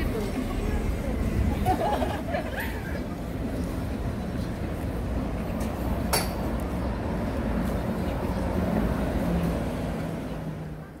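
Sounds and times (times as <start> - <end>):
low rumble of traffic: 0.0 - 11.0.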